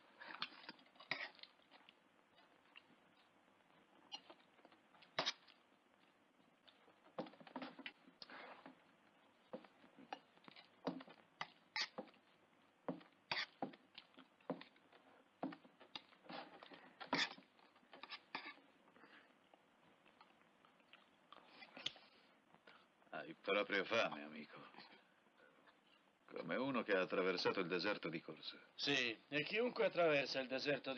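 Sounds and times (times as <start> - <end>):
chewing: 0.2 - 23.0
spoon scraping plate: 11.8 - 12.1, 17.0 - 18.6.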